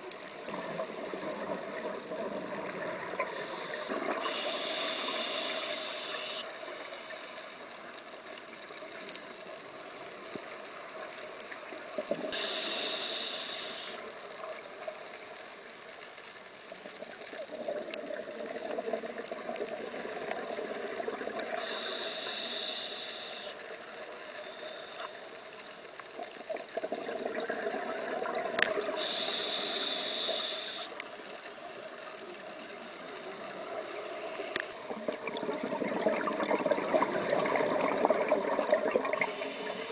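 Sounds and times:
regulator hiss: 0:02.6 - 0:07.8, 0:11.7 - 0:14.2, 0:20.7 - 0:26.2, 0:28.8 - 0:32.2, 0:33.2 - 0:35.1, 0:38.6 - 0:39.9
exhaled bubbles rushing: 0:26.5 - 0:29.0, 0:34.9 - 0:39.3.

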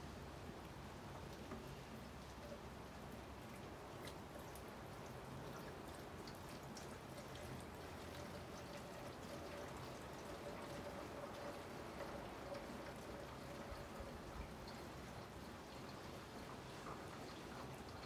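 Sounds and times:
liquid pouring in a thin stream: 0:01.2 - 0:18.0
small splashes: 0:01.2 - 0:18.0.

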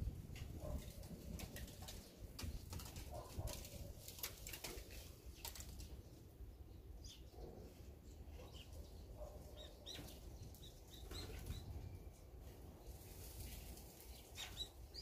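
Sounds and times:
songbirds chirping: 0:00.4 - 0:15.0
wings fluttering: 0:00.6 - 0:06.0.

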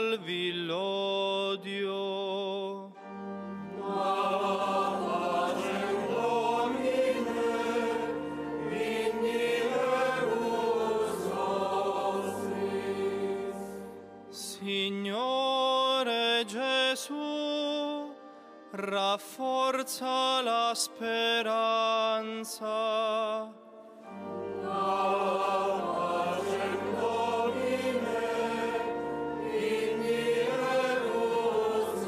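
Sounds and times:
mixed choir chanting: 0:03.7 - 0:14.8, 0:24.5 - 0:32.0.

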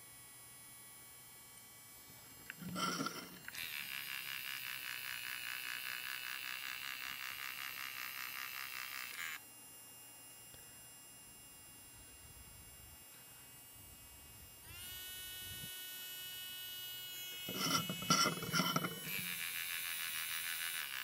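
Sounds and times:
pen feed motor whirring: 0:02.5 - 0:09.4, 0:14.7 - 0:21.0.

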